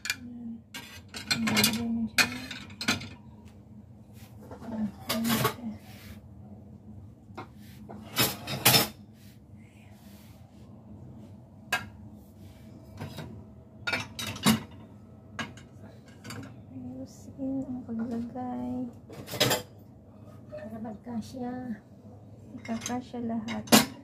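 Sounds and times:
ceramic plates clinking: 8.0 - 9.0.

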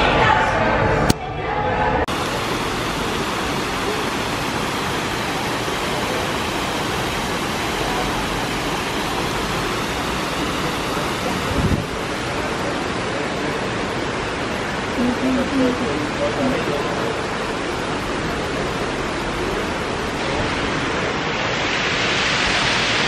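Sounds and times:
water splashing over stone cascade: 2.1 - 23.0.

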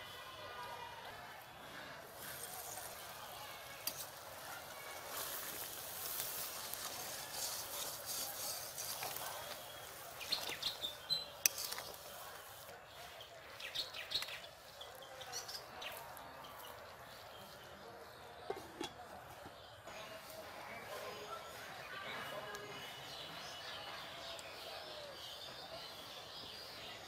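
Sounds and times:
curry simmering and sizzling: 2.0 - 15.6.

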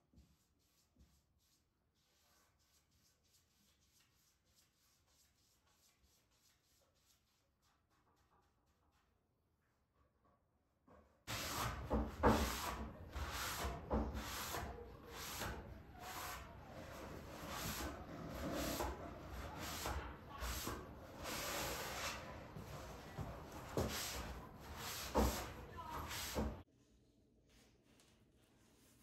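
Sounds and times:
cloth rubbing on wood: 11.3 - 26.6.

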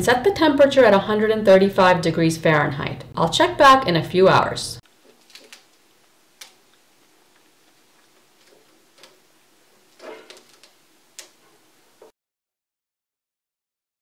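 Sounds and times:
clicks and rustles of dried fruit: 4.9 - 12.1.

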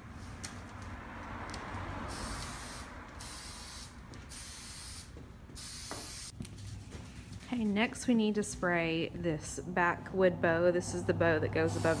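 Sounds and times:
aerosol spray can hissing: 2.1 - 6.3, 11.7 - 12.0.

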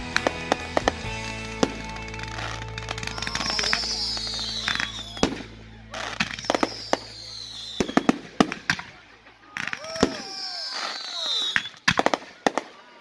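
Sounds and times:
fireworks bangs: 0.1 - 12.8
firework whistle falling in pitch: 2.3 - 8.2.

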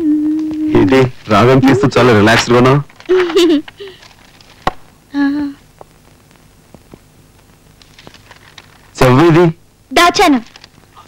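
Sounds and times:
woman humming: 0.0 - 2.0, 5.1 - 5.6.

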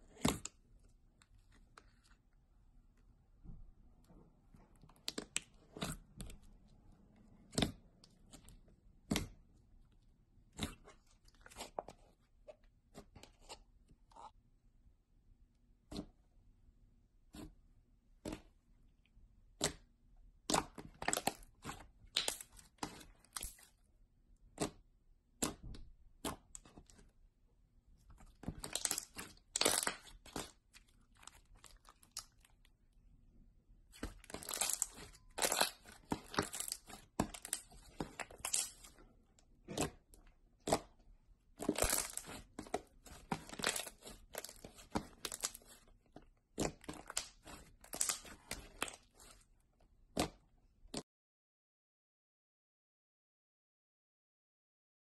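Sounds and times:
slime crackling and tearing: 28.5 - 32.5, 34.0 - 38.9, 41.6 - 45.8, 46.6 - 49.3.

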